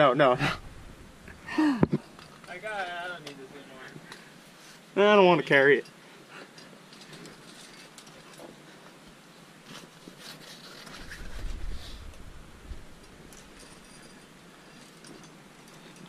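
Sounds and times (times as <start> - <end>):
low microphone rumble: 0.4 - 1.5
climber scraping on rock: 9.6 - 12.2.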